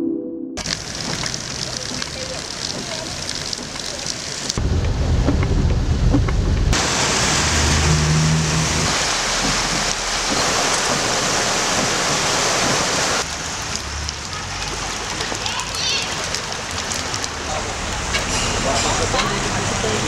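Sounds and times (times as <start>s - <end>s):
rushing hiss of water: 0.6s - 4.6s, 6.8s - 20.0s
vehicle engine hum: 0.6s - 20.0s
low rumble: 4.4s - 11.1s.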